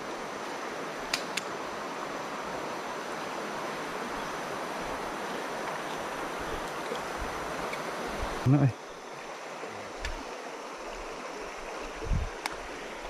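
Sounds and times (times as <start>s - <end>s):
river flowing: 0.0s - 13.0s
sharp clicks: 1.1s - 1.5s.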